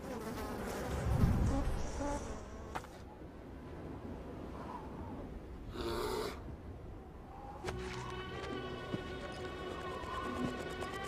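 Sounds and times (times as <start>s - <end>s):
buzzing insect-like drone: 0.0s - 2.8s, 8.1s - 11.0s.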